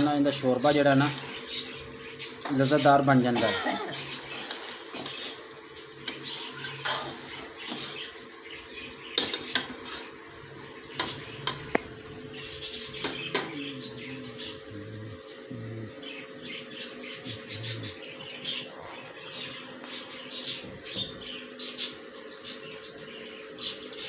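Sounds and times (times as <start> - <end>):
metal ladle scraping metal pot: 9.4 - 10.2.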